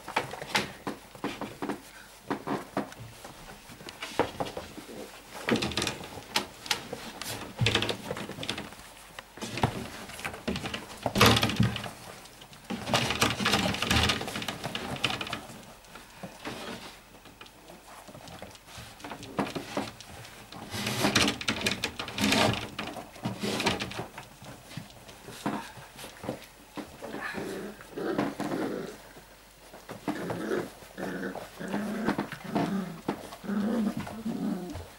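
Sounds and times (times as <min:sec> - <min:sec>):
paws knocking on wooden walls: 0:00.0 - 0:27.5
puppies scrabbling: 0:00.0 - 0:34.9.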